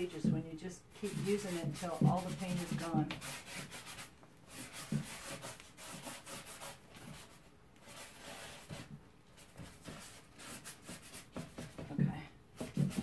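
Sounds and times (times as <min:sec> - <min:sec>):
paintbrush scrubbing cardboard: 0:00.0 - 0:12.0, 0:12.6 - 0:13.0.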